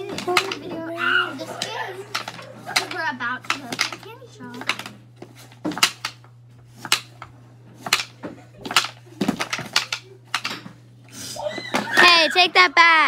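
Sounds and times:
pucks clacking on wooden board: 0.0s - 4.9s.

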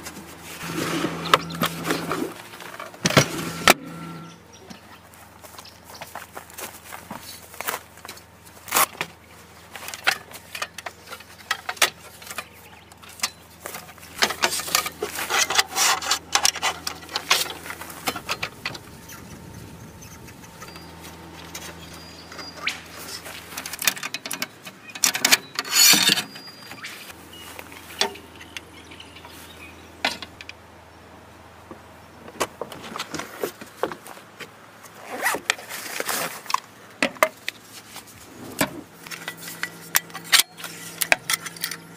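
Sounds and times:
knocks clicks and rattles of gear: 0.0s - 30.6s, 31.6s - 41.9s
rustling: 12.0s - 22.0s.

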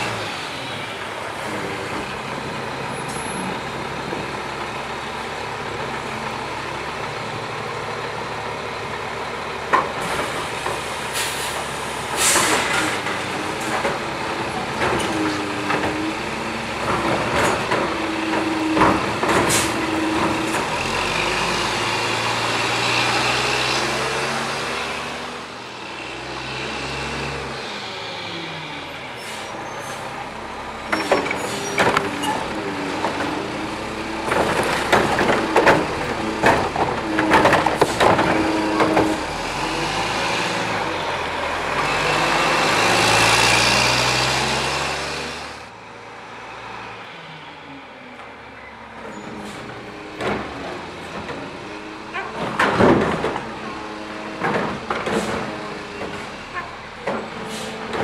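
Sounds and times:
air brake hisses: 11.0s - 12.7s, 57.4s - 57.8s.

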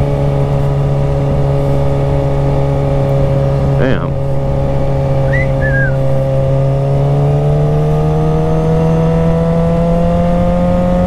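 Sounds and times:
motorcycle engine cruising: 0.0s - 11.0s
short high chirps: 5.3s - 6.0s.

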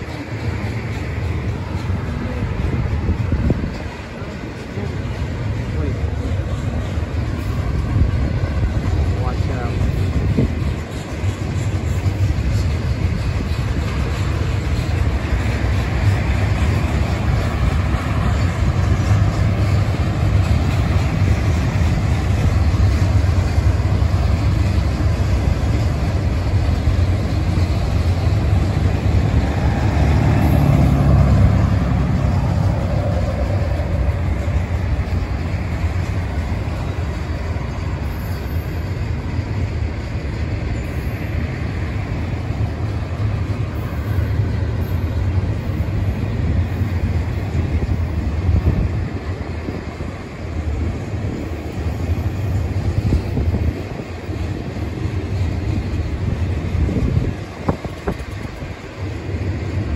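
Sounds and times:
train wheels rumbling on rail: 0.0s - 59.9s.

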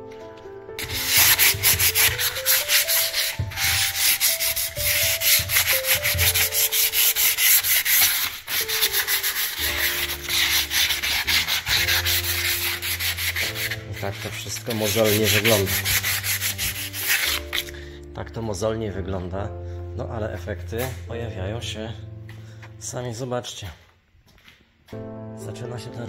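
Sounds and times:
sandpaper rubbing on wood: 0.8s - 17.7s.

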